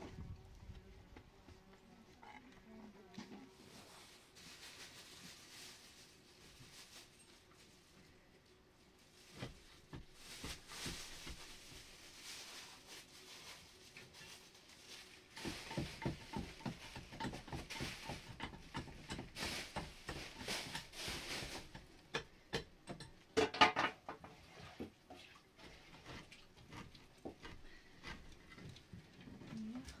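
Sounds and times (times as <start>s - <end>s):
light knocks and scrapes: 23.0s - 29.5s.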